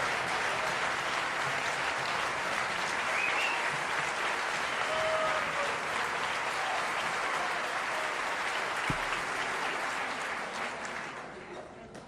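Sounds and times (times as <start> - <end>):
audience applauding: 0.0 - 11.5
low thump: 8.9 - 9.3.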